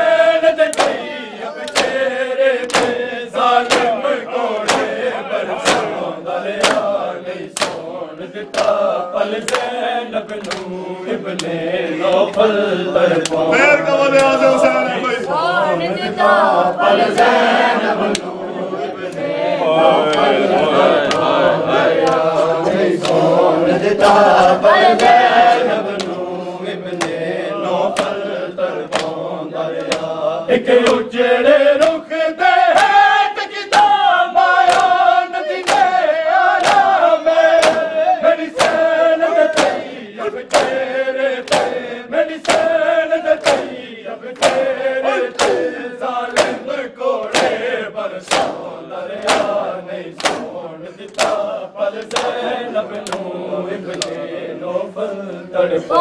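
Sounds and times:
group chanting in unison: 0.0s - 56.0s
chest-beating slaps: 0.6s - 14.6s, 17.0s - 17.4s, 18.0s - 18.4s, 21.0s - 28.3s, 28.9s - 30.2s, 33.7s - 34.0s, 34.6s - 36.0s, 36.6s - 53.3s, 53.9s - 54.3s.

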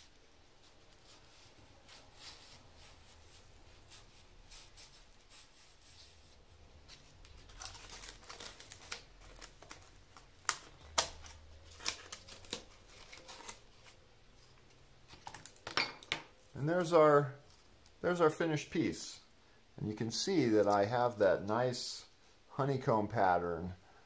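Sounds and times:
cardboard rustling and crackling: 0.0s - 15.6s
cardboard snapping: 7.6s - 13.6s.

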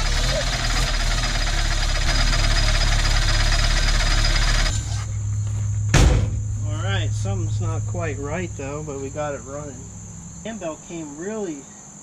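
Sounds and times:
car engine running: 0.0s - 11.2s
loud thump: 4.9s - 8.4s.

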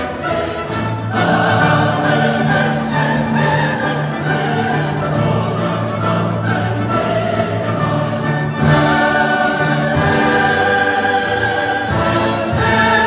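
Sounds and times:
choir singing sustained notes: 0.0s - 13.0s
dramatic orchestral music: 0.0s - 13.0s.

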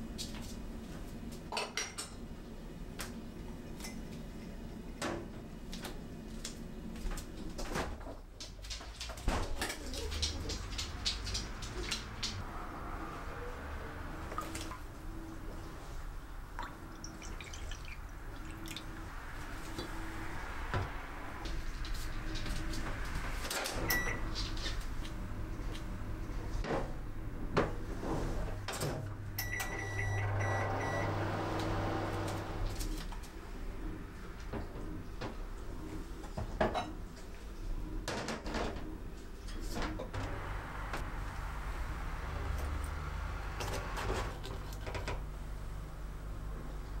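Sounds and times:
water pouring from kettle: 16.6s - 18.9s.

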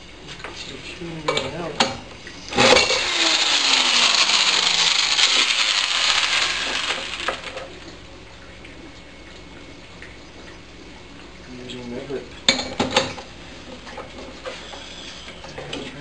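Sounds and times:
engine spun by electric drill: 2.5s - 7.8s.

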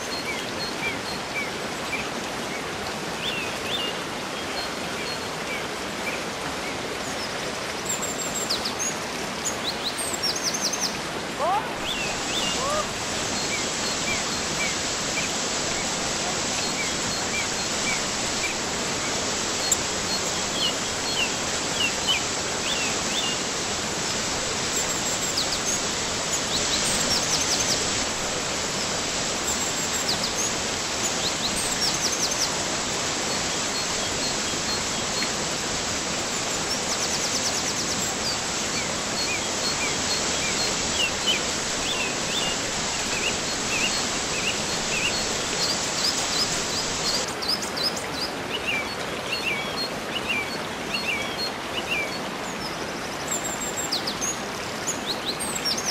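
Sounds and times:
small birds chirping: 0.0s - 23.5s, 36.2s - 55.9s
waterfall rushing: 0.0s - 55.9s.

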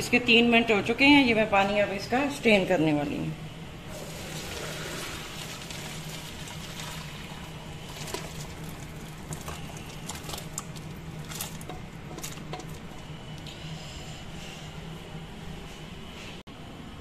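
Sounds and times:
water pouring into a colander: 3.9s - 12.8s
fries clattering into a colander: 7.9s - 12.9s.

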